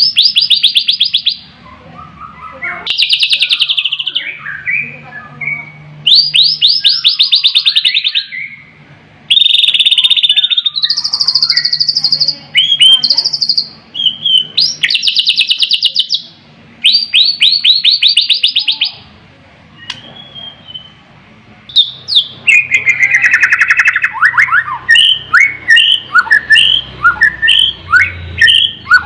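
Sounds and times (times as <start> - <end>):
bird singing trills and whistles: 0.0 - 19.0, 19.8 - 21.0, 21.7 - 29.0.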